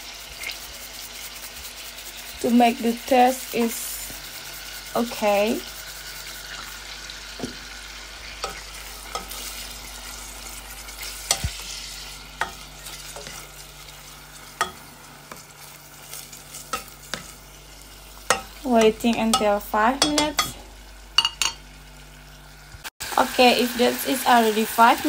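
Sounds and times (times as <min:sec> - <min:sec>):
meat sizzling in a pot: 0:00.0 - 0:25.0
spoon scraping against pot: 0:08.4 - 0:09.7, 0:10.5 - 0:17.4, 0:18.3 - 0:20.6.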